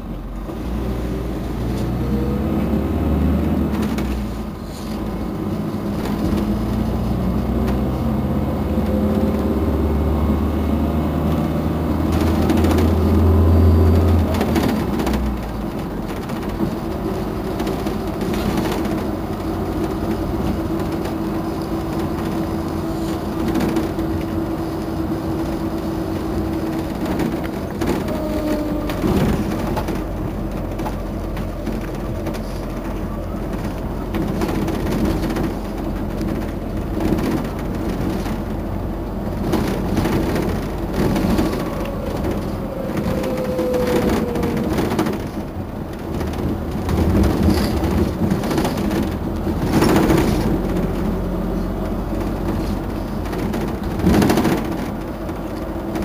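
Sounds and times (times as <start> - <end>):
bus engine idling: 0.0 - 56.0.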